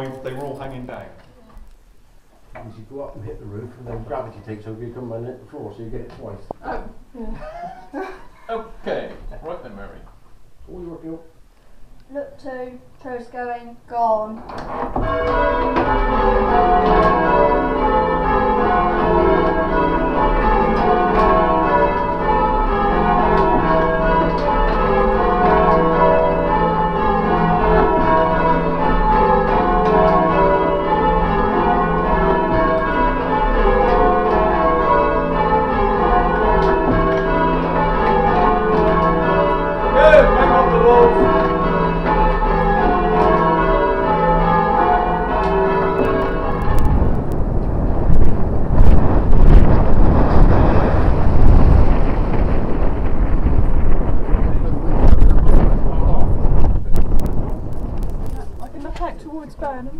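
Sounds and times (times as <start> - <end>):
church bells ringing: 14.9 - 47.6.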